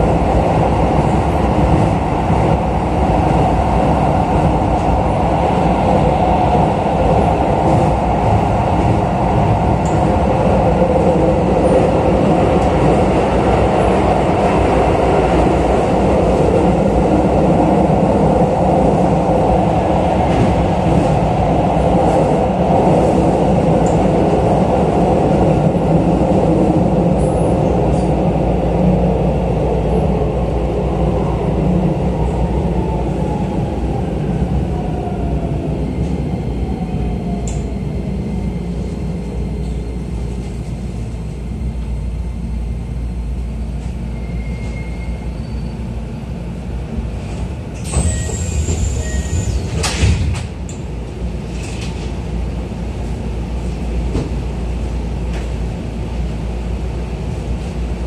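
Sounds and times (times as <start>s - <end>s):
brake squeal: 44.2s - 45.8s.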